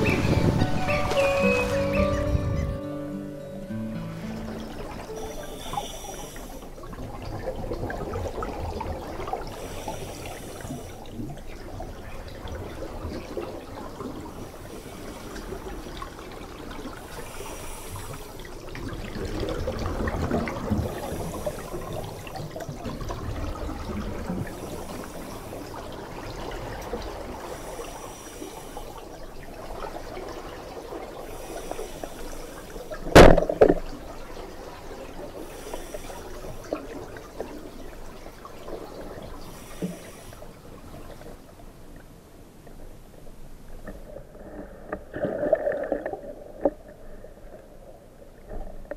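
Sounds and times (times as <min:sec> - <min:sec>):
muffled underwater rushing water: 0:00.0 - 0:03.1, 0:03.7 - 0:48.9
speargun firing crack: 0:33.2 - 0:33.5.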